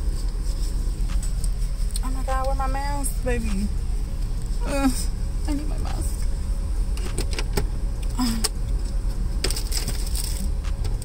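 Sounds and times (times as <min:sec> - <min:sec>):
car engine idling: 0:00.0 - 0:11.0
clicks and rustles of rummaging: 0:09.4 - 0:11.0.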